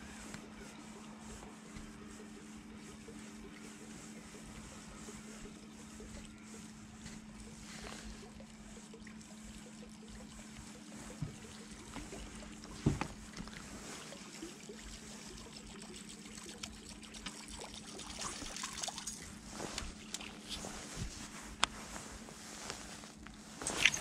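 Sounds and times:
faint water trickle: 0.0 - 21.7
steady low hum: 0.0 - 24.0
fish splashing at surface: 23.6 - 24.0.

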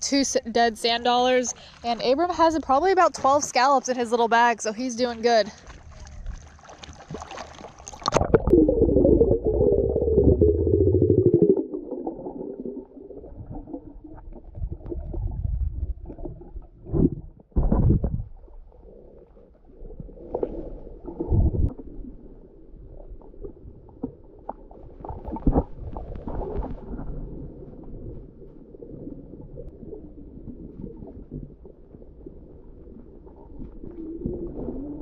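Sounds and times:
underwater rumbling water: 0.0 - 35.0
dull underwater thumps: 5.3 - 18.6.

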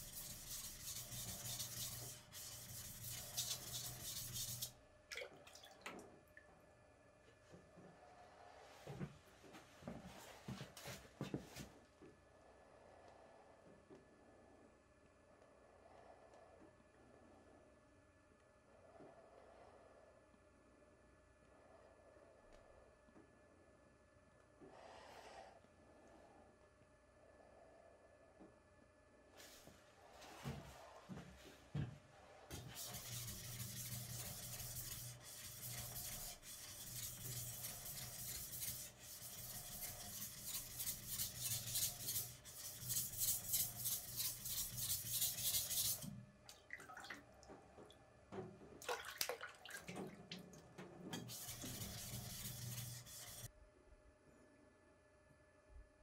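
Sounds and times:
knife rubbing on whetstone: 0.0 - 4.7, 32.5 - 46.0, 51.2 - 53.5.

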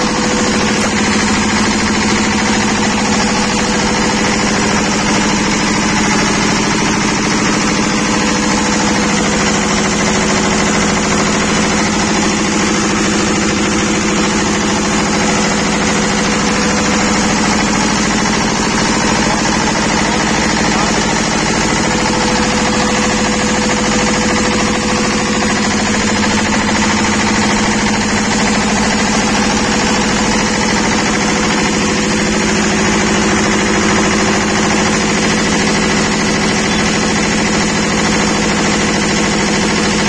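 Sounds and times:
diesel generator running: 0.0 - 40.0.

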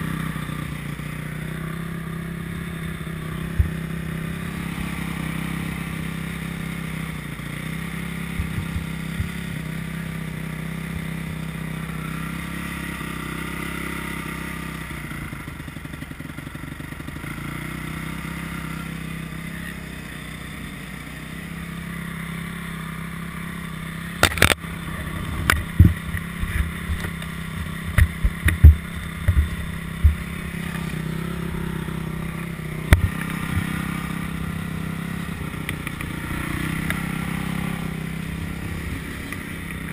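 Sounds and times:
motorbike engine idling: 0.0 - 39.9
sharp knocks and clacks: 8.4 - 9.4, 25.4 - 30.8.

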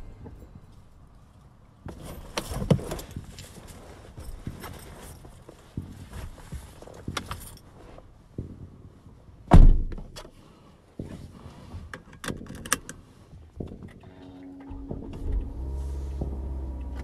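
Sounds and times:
rustles of person moving in seat: 0.8 - 8.3, 10.3 - 12.1, 12.9 - 17.0
car door shutting: 13.9 - 17.0.

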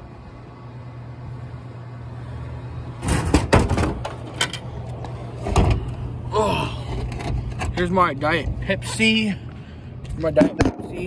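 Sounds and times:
steady low hum: 0.0 - 11.0
plastic clunks and rattling: 3.0 - 4.6, 5.4 - 5.9.

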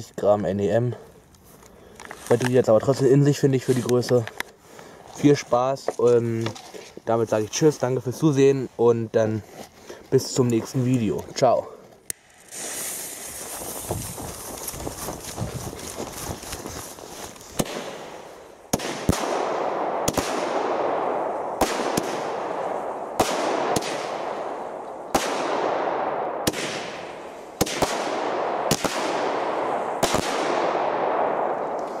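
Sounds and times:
firework burst crackling tail: 12.3 - 15.4
firework bangs: 12.4 - 16.1, 18.7 - 32.0.

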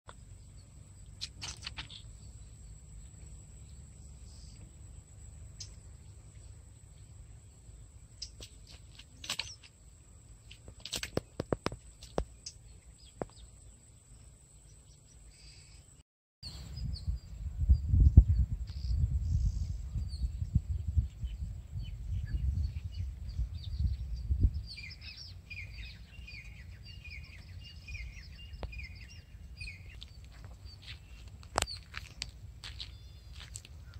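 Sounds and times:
birds chirping: 0.1 - 33.9
wind rumble on microphone: 16.4 - 33.9.

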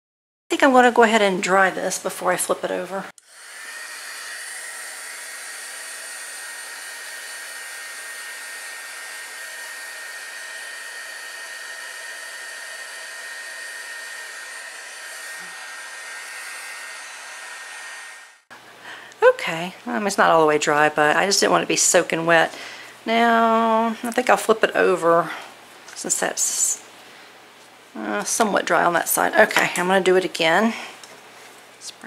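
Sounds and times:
heat gun blowing: 3.2 - 18.5.

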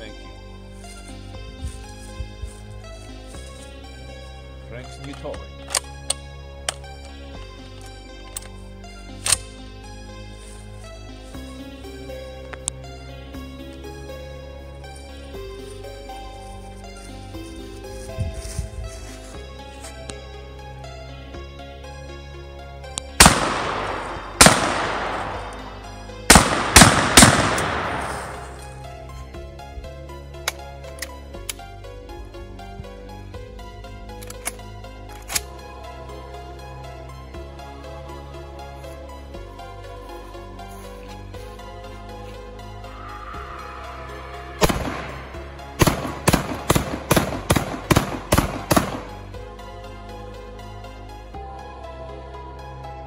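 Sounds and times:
background music: 0.0 - 53.0
shotgun shots: 23.2 - 28.6, 44.6 - 49.2.

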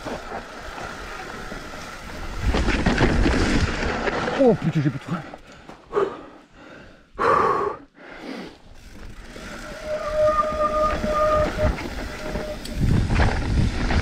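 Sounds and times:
tyres rumbling on dirt trail: 0.0 - 7.0, 8.4 - 14.0
bike disc brakes squealing: 8.9 - 13.1.

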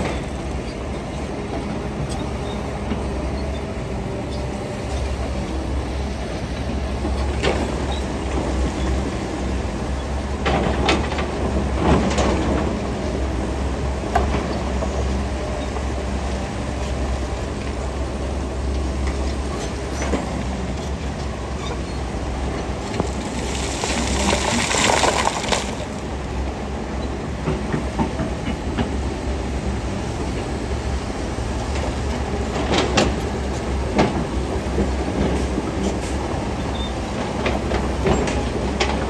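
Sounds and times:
diesel machinery engine rumble: 0.0 - 39.0
stone rattling and clanking: 23.2 - 26.0.

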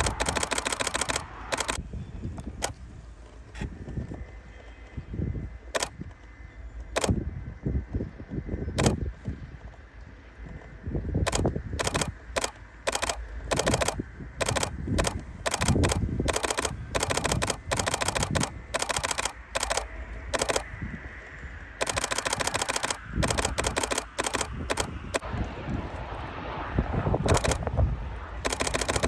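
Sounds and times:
camera shutter bursts: 0.0 - 1.8, 5.7 - 6.1, 6.9 - 7.2, 8.8 - 9.0, 11.2 - 20.7, 21.8 - 25.2, 27.3 - 27.6, 28.4 - 29.0.

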